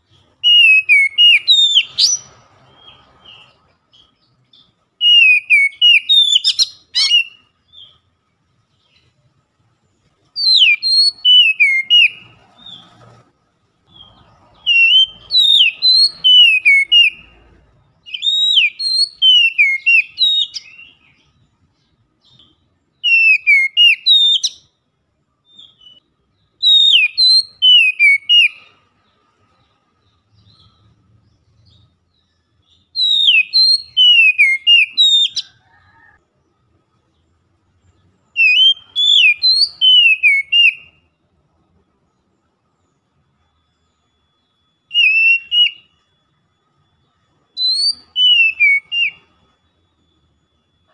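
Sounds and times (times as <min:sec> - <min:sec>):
bird singing whistled phrases: 0:00.2 - 0:08.0, 0:10.4 - 0:12.9, 0:13.9 - 0:24.8, 0:25.4 - 0:28.8, 0:30.3 - 0:36.2, 0:38.2 - 0:41.1, 0:43.8 - 0:46.3, 0:46.9 - 0:50.9.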